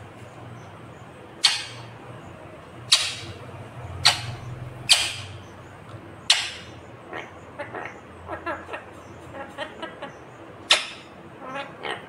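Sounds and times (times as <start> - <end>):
parakeet screeching: 1.4 - 1.9, 2.9 - 3.4, 4.0 - 5.4, 6.3 - 8.8, 10.7 - 12.0.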